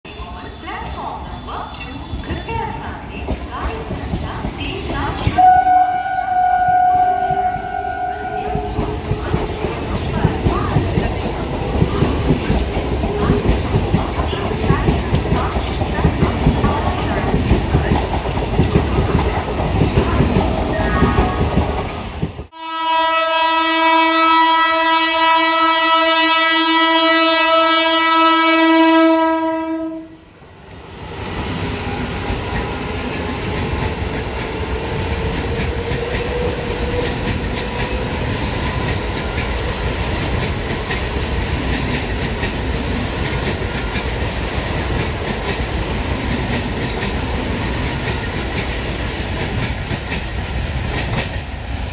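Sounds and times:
train rolling past: 0.1s - 51.9s
train horn: 5.3s - 9.4s, 22.5s - 30.2s.

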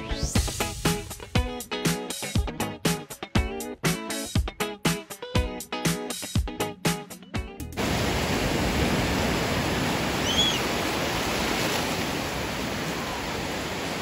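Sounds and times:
small waves breaking in shallows: 7.8s - 14.0s.

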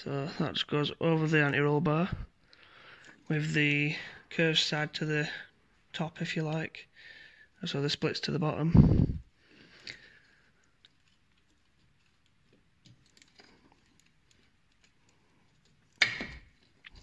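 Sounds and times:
handling clicks and rubbing: 9.8s - 17.0s.

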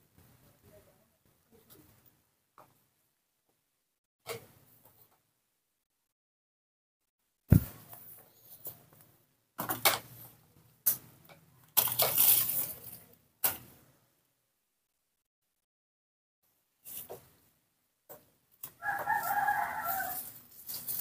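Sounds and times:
rustling crunching noise: 11.8s - 13.1s, 18.6s - 21.0s.

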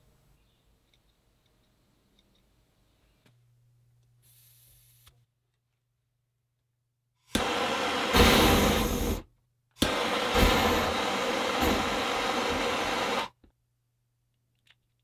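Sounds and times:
propane torch hissing: 7.4s - 13.3s.

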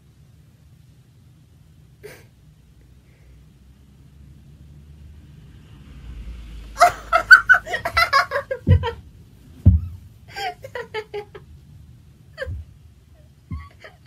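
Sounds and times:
woman giggling and laughing: 6.8s - 9.0s, 10.3s - 11.4s, 12.4s - 14.0s
dull thumps: 7.7s - 10.3s, 12.4s - 13.9s.

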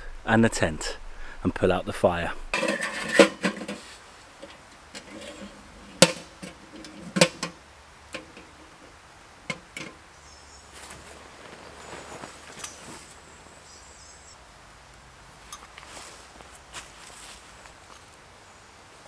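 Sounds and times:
camping gear knocking and clinking: 2.5s - 10.0s, 11.8s - 13.2s.

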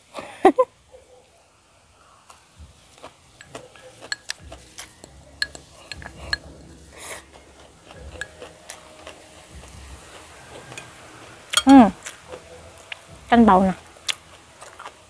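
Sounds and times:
noisy rush: 1.9s - 15.0s
chopsticks clicking on bowl: 3.4s - 6.5s.

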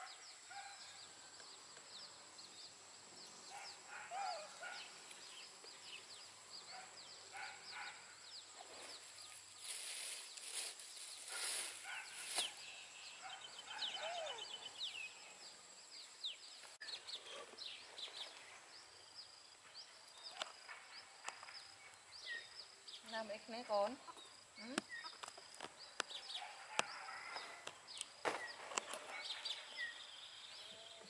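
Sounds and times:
birds chirping: 0.0s - 31.0s
rustling: 8.6s - 12.6s.

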